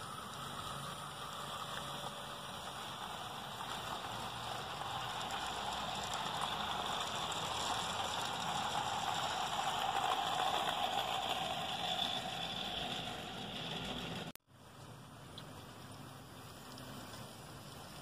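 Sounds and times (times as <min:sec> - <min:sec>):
model train wheels on rails: 0:00.0 - 0:14.4.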